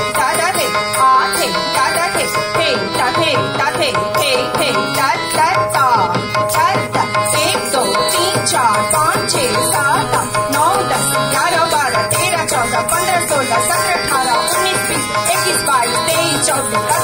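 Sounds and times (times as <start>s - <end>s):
tabla playing a steady rhythm: 0.0s - 17.0s
ornamented sliding melody: 6.0s - 17.0s.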